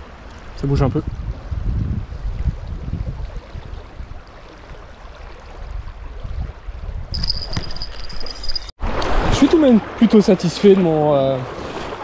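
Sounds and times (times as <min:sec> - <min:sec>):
wind buffeting microphone: 0:00.5 - 0:09.3.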